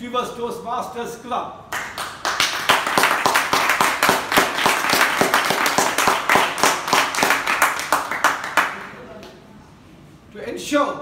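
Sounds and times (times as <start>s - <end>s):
small group applauding: 1.7s - 9.4s.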